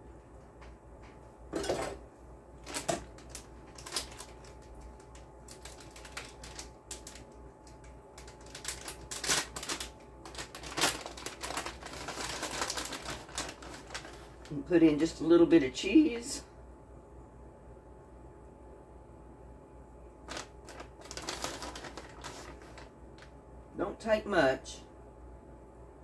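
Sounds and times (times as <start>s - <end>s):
plastic bag crinkling: 2.6s - 14.7s, 20.2s - 23.3s.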